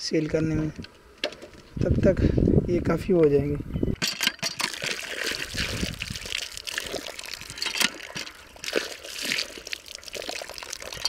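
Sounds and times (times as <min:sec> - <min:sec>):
water pouring from pipe: 0:04.6 - 0:11.0
water splashing over hand: 0:04.6 - 0:11.0.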